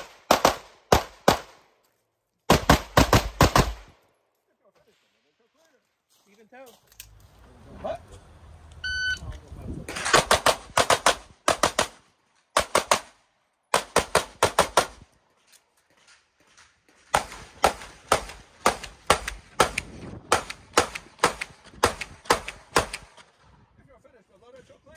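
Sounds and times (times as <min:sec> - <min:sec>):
rapid pistol shots: 0:00.0 - 0:01.6, 0:02.5 - 0:03.9, 0:10.1 - 0:12.0, 0:12.6 - 0:15.0, 0:17.1 - 0:23.2.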